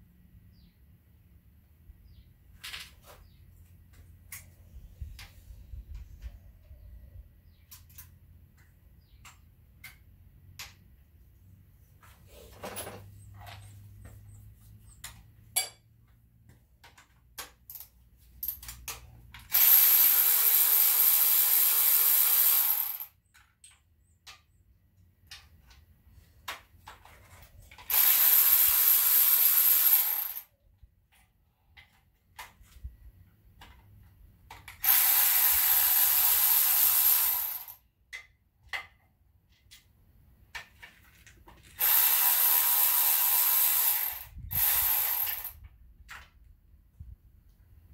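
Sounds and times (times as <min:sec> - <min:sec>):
power tool driving fasteners: 0:16.9 - 0:23.2, 0:26.8 - 0:30.5, 0:34.5 - 0:37.9, 0:41.6 - 0:46.3.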